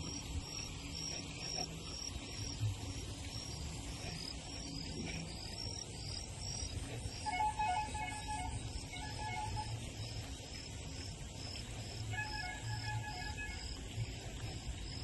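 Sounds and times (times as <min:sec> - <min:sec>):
cricket chirping: 0:00.0 - 0:15.0
lower patterned call: 0:07.2 - 0:10.2, 0:12.1 - 0:13.8.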